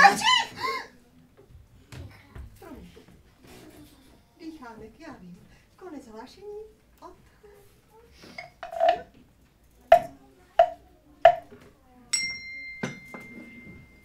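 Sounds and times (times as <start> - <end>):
bell-like ringing clink: 12.1 - 14.0.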